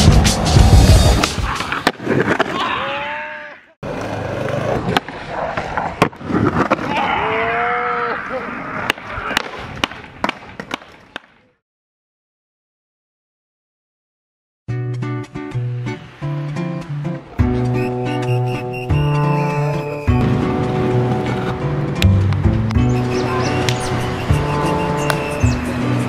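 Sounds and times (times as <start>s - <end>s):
skateboard wheels rolling on pavement: 0.1s - 3.0s, 3.8s - 7.2s, 15.5s - 26.0s
skateboard clacks: 20.2s - 25.4s.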